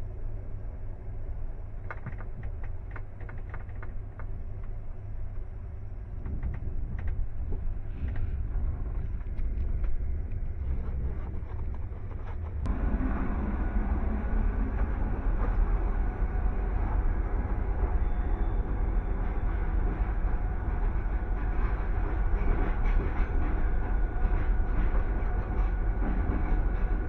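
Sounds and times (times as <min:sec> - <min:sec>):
train carriage rumbling: 0:00.0 - 0:27.0
clicks and knocks from running gear: 0:01.8 - 0:04.8.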